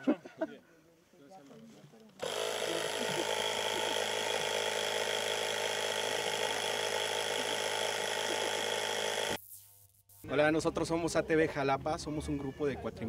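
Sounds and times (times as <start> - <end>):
electric air compressor running: 2.2 - 10.4.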